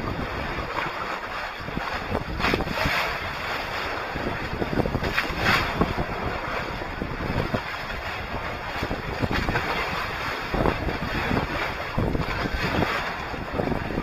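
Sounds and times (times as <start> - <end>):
water rushing along hulls: 0.0 - 14.0
wind noise on microphone: 0.0 - 14.0.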